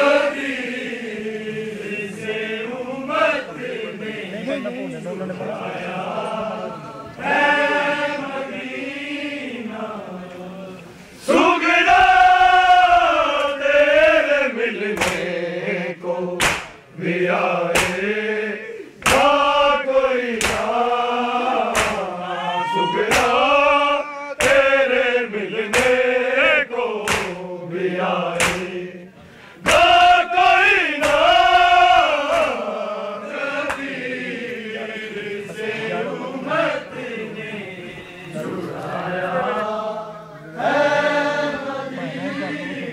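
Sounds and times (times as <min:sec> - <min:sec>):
men chanting together: 0:00.0 - 0:04.7, 0:05.3 - 0:42.9
hands slapping chests: 0:15.0 - 0:15.3, 0:16.4 - 0:16.8, 0:17.7 - 0:18.0, 0:19.0 - 0:19.4, 0:20.4 - 0:20.7, 0:21.7 - 0:22.0, 0:23.1 - 0:23.4, 0:24.4 - 0:24.7, 0:25.7 - 0:26.0, 0:27.0 - 0:27.4, 0:28.4 - 0:28.7, 0:29.6 - 0:30.0, 0:31.0 - 0:31.4, 0:33.7 - 0:33.9.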